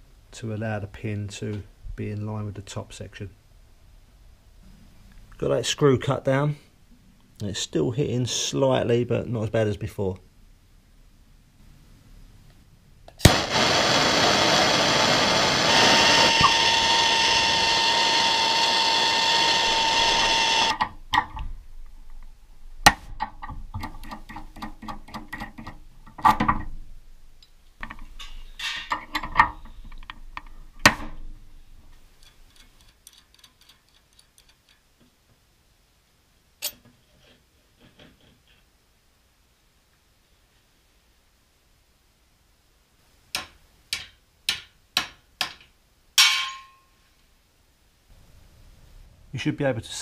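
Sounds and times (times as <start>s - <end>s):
power tool running: 13.2s - 20.8s
metal clinks and knocks: 32.2s - 34.9s, 46.2s - 46.9s.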